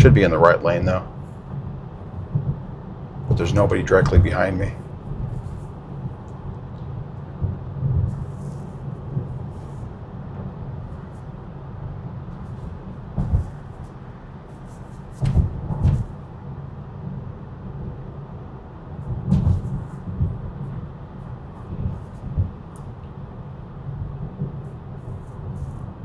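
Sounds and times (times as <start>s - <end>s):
tyre and road noise in car: 1.2s - 26.0s
dull thumps: 19.1s - 20.4s.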